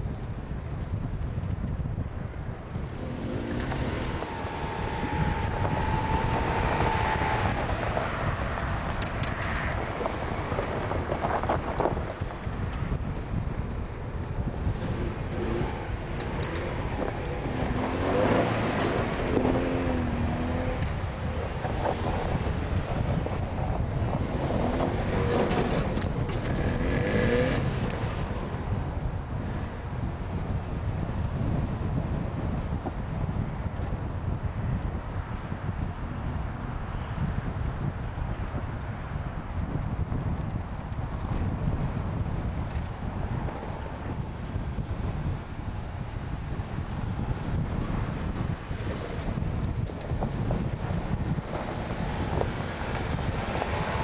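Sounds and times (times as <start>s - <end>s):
wind rumble on microphone: 0.0s - 54.0s
suv engine revving: 2.8s - 12.3s, 14.5s - 28.8s.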